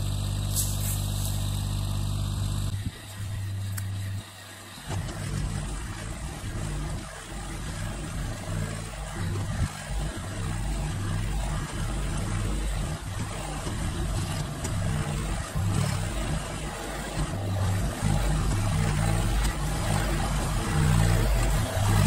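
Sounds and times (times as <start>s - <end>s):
loader pushing dirt: 0.0s - 22.0s
tractor diesel engine running: 0.0s - 22.0s.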